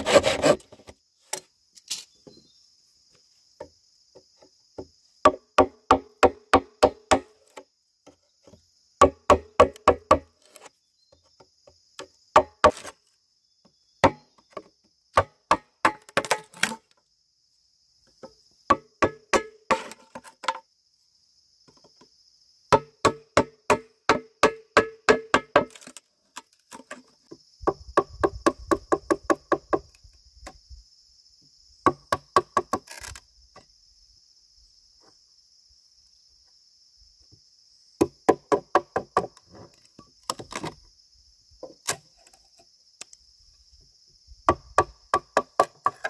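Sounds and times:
tool striking bamboo: 0:04.8 - 0:07.6, 0:09.0 - 0:10.7, 0:12.0 - 0:13.0, 0:14.0 - 0:16.8, 0:18.7 - 0:20.6, 0:22.7 - 0:26.0, 0:31.8 - 0:33.2.

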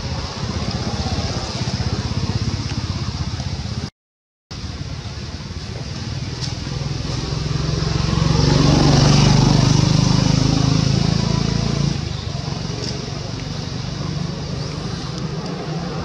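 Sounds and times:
motor vehicle passing: 0:05.7 - 0:16.0.

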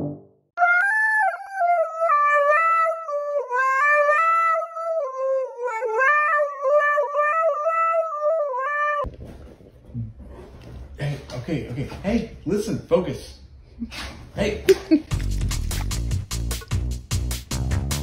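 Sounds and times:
dog howling into microphone: 0:00.6 - 0:09.1.

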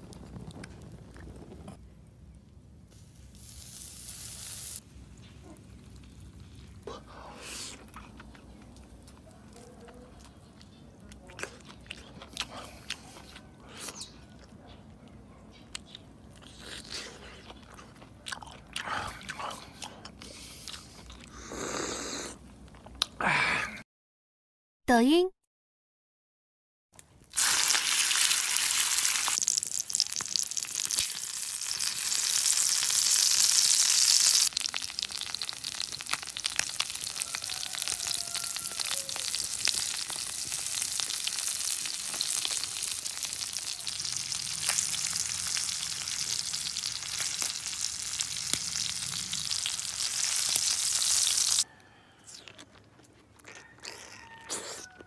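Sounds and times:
food sizzling on hot stone: 0:02.8 - 0:06.8, 0:27.3 - 0:51.6.

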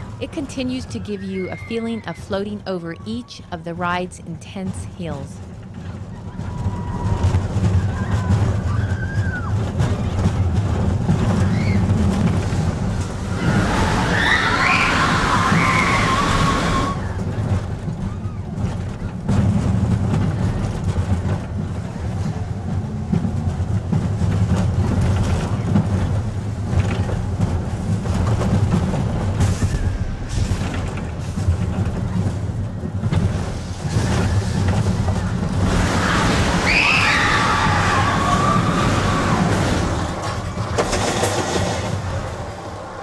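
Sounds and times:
roller coaster rumbling on track: 0:00.0 - 0:43.0
riders screaming: 0:06.1 - 0:10.0, 0:11.3 - 0:12.0, 0:13.2 - 0:17.4, 0:34.0 - 0:40.6.

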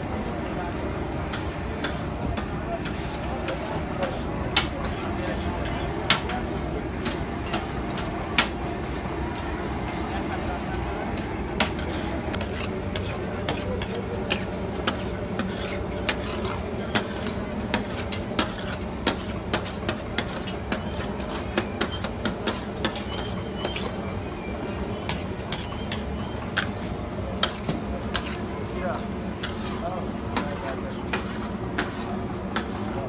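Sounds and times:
metal spatula scraping a griddle: 0:01.0 - 0:08.1, 0:11.7 - 0:24.0, 0:25.1 - 0:30.1.

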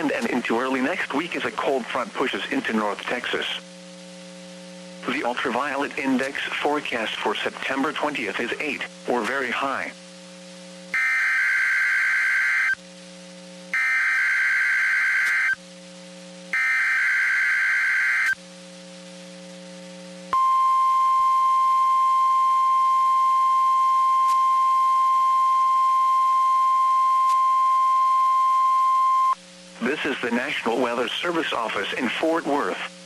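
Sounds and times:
faint steady hum: 0:00.0 - 0:33.0
steady warning alarm tone: 0:10.9 - 0:12.8, 0:13.7 - 0:15.6, 0:16.5 - 0:18.4
warbling digital data screech: 0:11.0 - 0:12.8, 0:13.8 - 0:15.6, 0:16.6 - 0:18.4.

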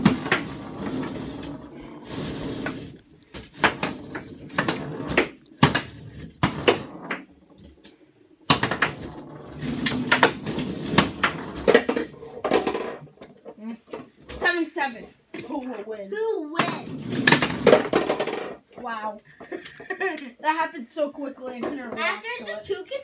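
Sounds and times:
foosball ball clacks and knocks: 0:00.0 - 0:14.4, 0:16.6 - 0:19.9
foosball rods rattling: 0:00.0 - 0:14.6, 0:16.6 - 0:20.0.

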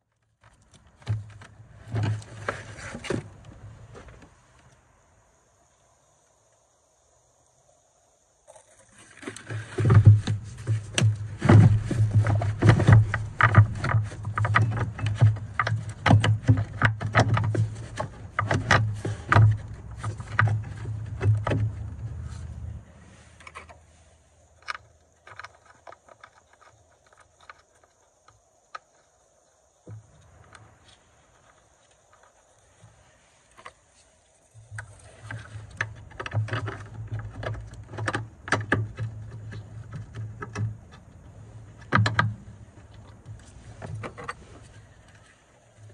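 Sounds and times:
car battery knocks and scrapes: 0:09.2 - 0:23.9, 0:34.6 - 0:45.9.

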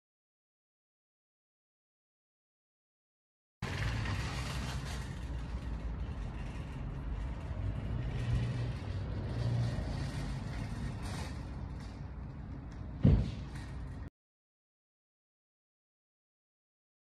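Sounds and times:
road traffic rumble: 0:03.6 - 0:14.1.

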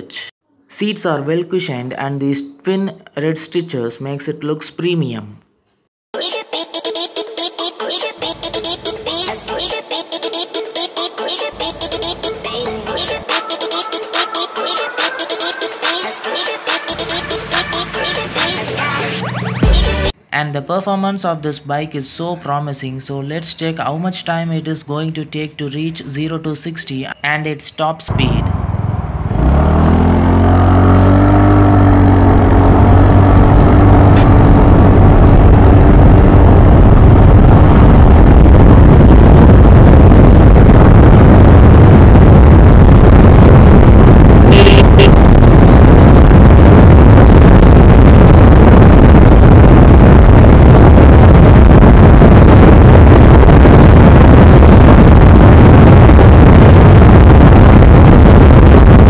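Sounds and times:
scooter engine accelerating: 0:28.1 - 0:37.2, 0:44.3 - 0:48.4
wind and road noise: 0:28.1 - 0:59.0.

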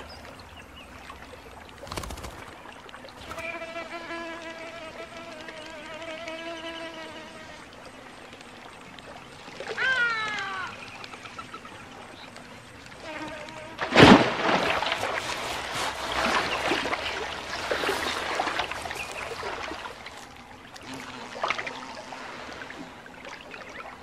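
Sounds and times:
churning water splashing: 0:13.7 - 0:24.0
loud water splash: 0:13.8 - 0:20.0.

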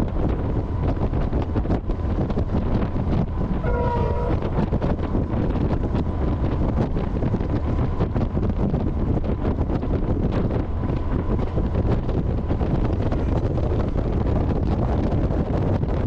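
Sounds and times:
train running rumble: 0:00.0 - 0:16.0
wind buffeting microphone: 0:00.0 - 0:16.0.

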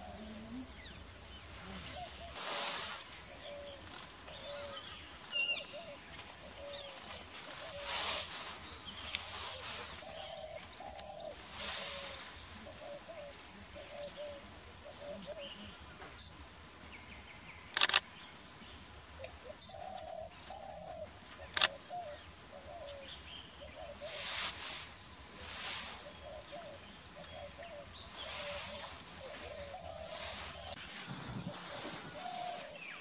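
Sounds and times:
high insect drone: 0:00.0 - 0:33.0
sharp clicks: 0:17.7 - 0:18.0.

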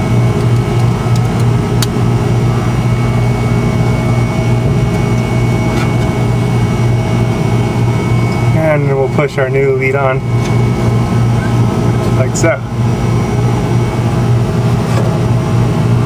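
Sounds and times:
machinery drone: 0:00.0 - 0:16.0
faint high whine: 0:01.6 - 0:15.4.

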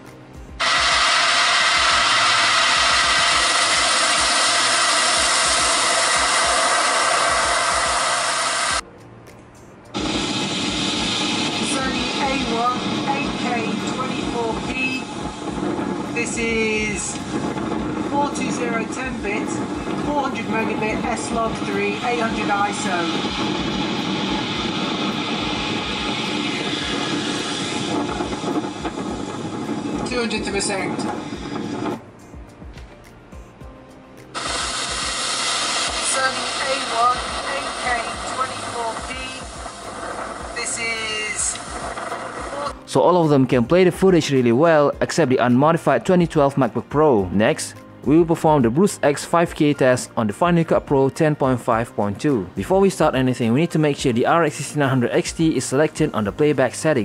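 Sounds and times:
loud steady rushing noise: 0:00.5 - 0:08.8, 0:10.0 - 0:32.1, 0:34.4 - 0:43.0
low pulsing rumble: 0:11.3 - 0:31.9.

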